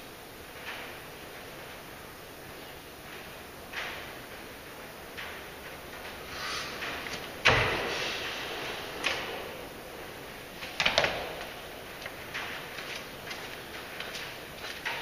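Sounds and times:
knocks on wooden pallets: 0:06.8 - 0:08.0, 0:10.6 - 0:12.6
deep thud on wooden pallets: 0:06.9 - 0:08.1.

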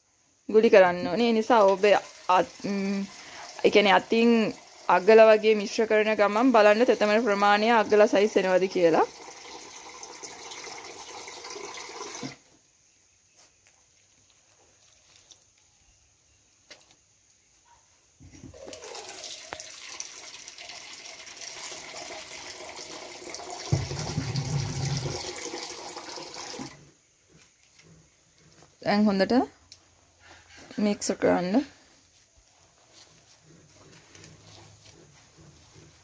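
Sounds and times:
water running: 0:01.2 - 0:12.4, 0:18.4 - 0:26.8.

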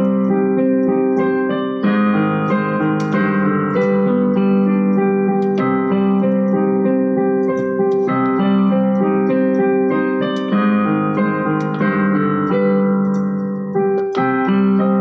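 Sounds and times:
piano playing slow chords: 0:00.0 - 0:15.0.

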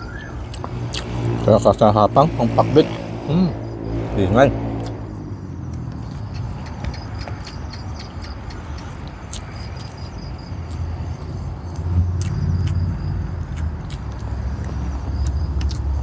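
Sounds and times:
crickets chirping: 0:00.0 - 0:16.0
person eating: 0:07.4 - 0:16.0.

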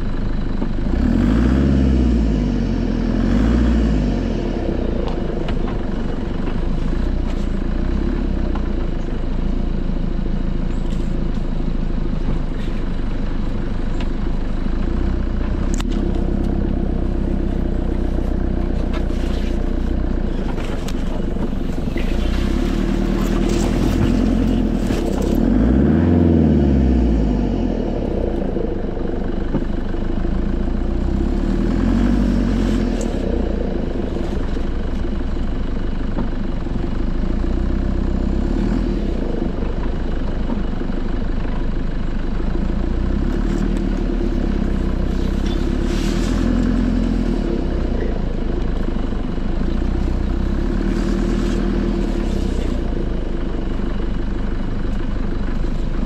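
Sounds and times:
vehicle engine driving slowly: 0:00.0 - 0:56.0
branches scraping vehicle body: 0:17.3 - 0:26.2, 0:43.5 - 0:48.0, 0:49.8 - 0:53.6.

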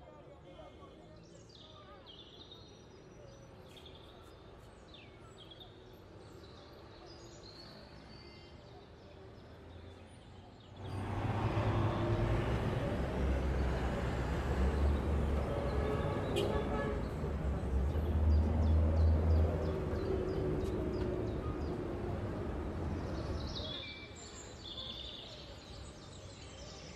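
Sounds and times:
street ambience: 0:00.0 - 0:26.9
low traffic rumble: 0:10.7 - 0:23.6.

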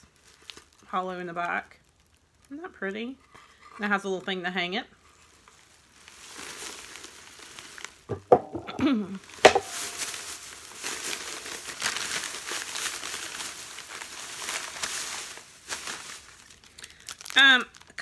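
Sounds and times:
plastic bag rustling: 0:05.2 - 0:18.0
sharp knocks: 0:08.1 - 0:08.9, 0:09.5 - 0:10.0.

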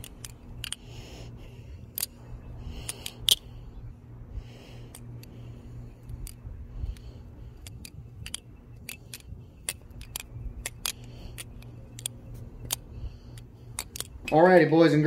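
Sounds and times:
butterfly knife clacking: 0:00.0 - 0:01.0, 0:01.8 - 0:03.6, 0:05.9 - 0:14.4
low steady hum: 0:00.0 - 0:15.0.

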